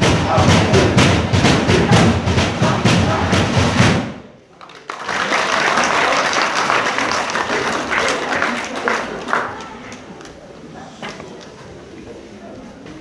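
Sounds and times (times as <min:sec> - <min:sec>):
group singing: 0:00.0 - 0:03.9
fast drumming: 0:00.0 - 0:04.2
applause: 0:04.5 - 0:10.1.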